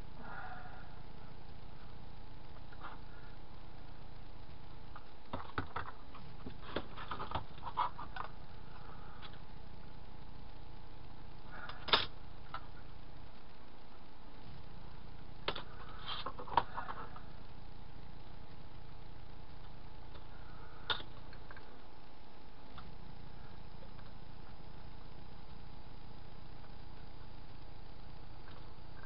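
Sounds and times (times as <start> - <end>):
steady background hum: 0.0 - 29.0
plastic parts clicking and tapping: 4.9 - 8.4, 20.8 - 21.7.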